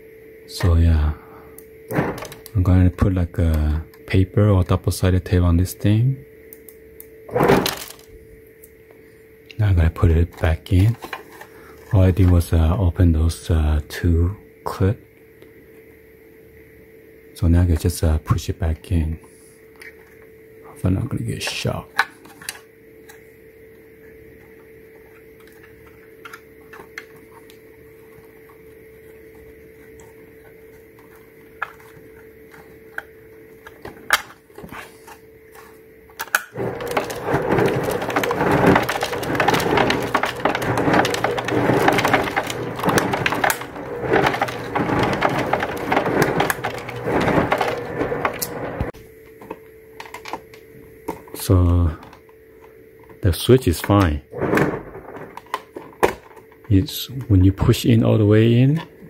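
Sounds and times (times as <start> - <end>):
faint steady hum: 0.0 - 59.0
ice dispenser crushing ice: 1.9 - 4.7, 7.3 - 8.2, 9.6 - 13.6, 21.3 - 23.2, 24.4 - 49.0, 50.0 - 50.6, 53.7 - 59.0.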